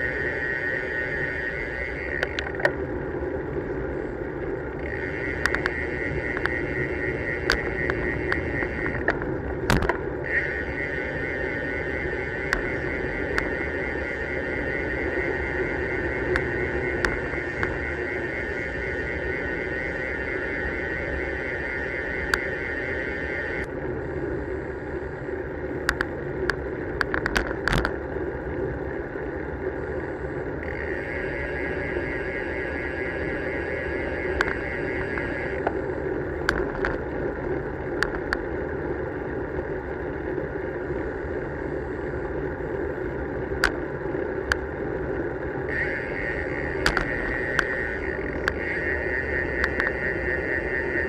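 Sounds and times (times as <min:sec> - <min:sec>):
high buzz: 0:00.0 - 0:02.9, 0:03.7 - 0:23.7, 0:30.6 - 0:36.9, 0:45.6 - 0:51.0
bike clicking and rattling: 0:00.0 - 0:51.0
wind and tyre noise: 0:00.0 - 0:51.0.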